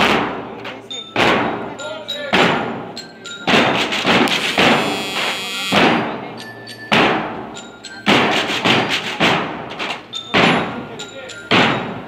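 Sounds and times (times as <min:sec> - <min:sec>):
marching band drums beating: 0:00.0 - 0:00.6, 0:01.2 - 0:01.7, 0:02.3 - 0:02.9, 0:03.5 - 0:06.2, 0:06.9 - 0:10.8, 0:11.5 - 0:12.0
held high note: 0:04.3 - 0:05.8.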